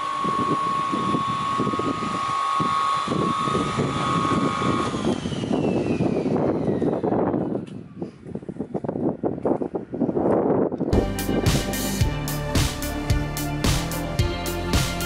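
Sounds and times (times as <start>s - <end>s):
saw whining and winding down: 0.0s - 8.7s
low wind rumble on microphone: 0.0s - 11.7s.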